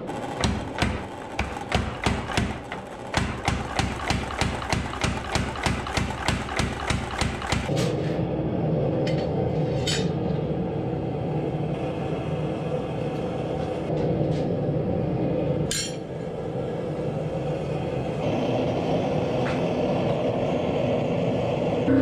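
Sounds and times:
power hammer pounding metal: 0.0 - 7.7
steady machine hum: 0.0 - 9.5, 14.5 - 22.0.

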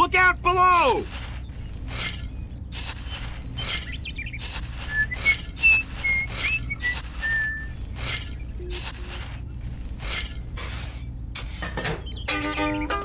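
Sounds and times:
metal shovel scraping rice: 0.8 - 2.2, 2.8 - 9.4, 10.0 - 11.7
short whistled notes: 4.6 - 9.1.

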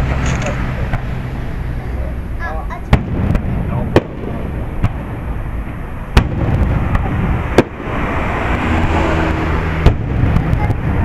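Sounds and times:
low rumble: 0.0 - 11.0
firework shells bursting: 2.8 - 8.1.

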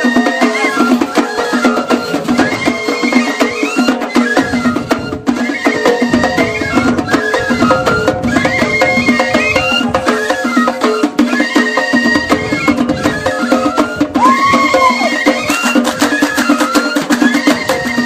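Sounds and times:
music with percussion beat: 0.0 - 18.0.

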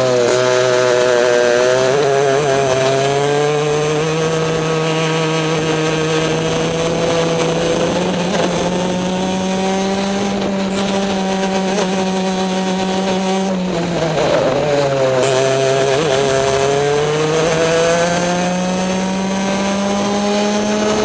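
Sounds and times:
kart engine running hard: 0.0 - 21.0.

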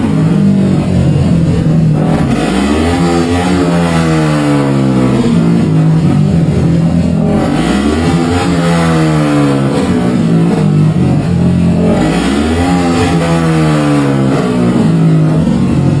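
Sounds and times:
quad engine revving: 0.0 - 16.0.

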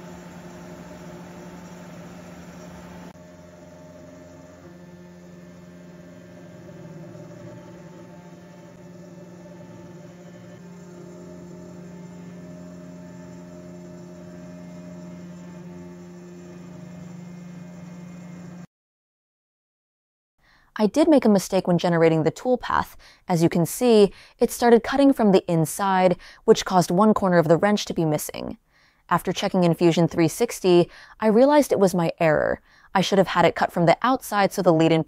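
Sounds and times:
milling hiss: 0.0 - 18.6
spindle motor humming: 0.0 - 18.7.

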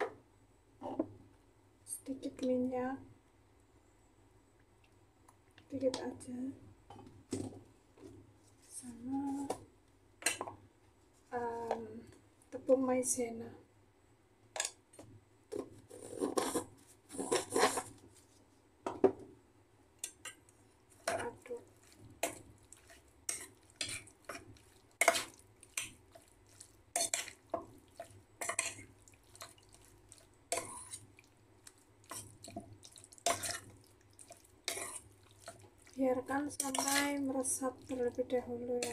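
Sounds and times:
metal spoon scraping steel bowl: 15.9 - 17.9, 36.6 - 37.1.

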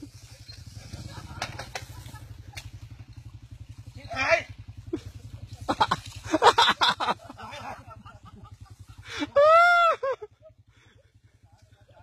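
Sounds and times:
motorbike engine idling: 0.0 - 12.0
bursts of laughter: 0.9 - 2.8, 4.8 - 11.2.

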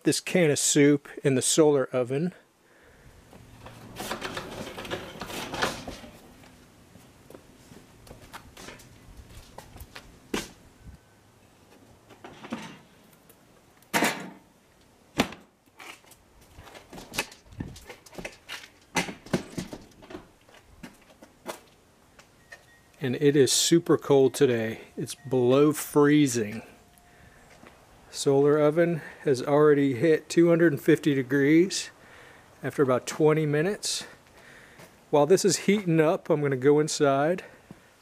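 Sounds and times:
rustling: 2.9 - 10.7.

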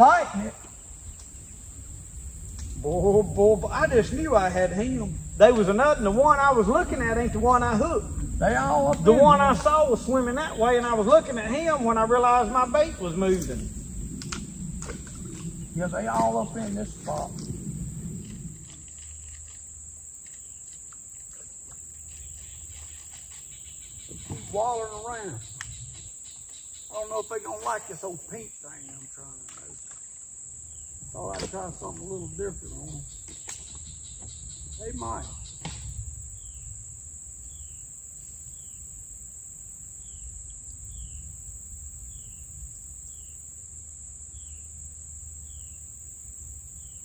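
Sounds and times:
low steady rumble: 0.0 - 20.0
insects chorus: 0.0 - 47.0.

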